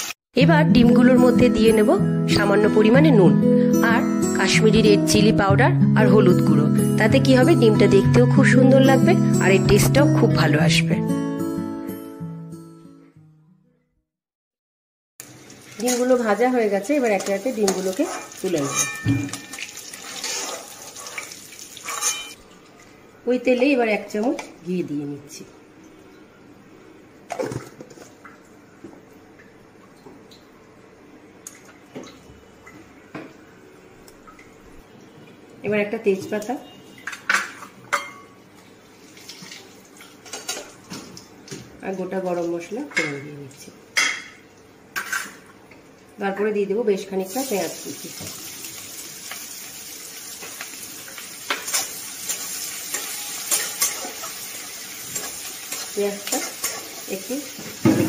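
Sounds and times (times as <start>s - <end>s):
ghee sizzling in hot oil: 15.2s - 22.4s, 47.2s - 57.9s
spatula scraping a pan: 20.1s - 22.4s.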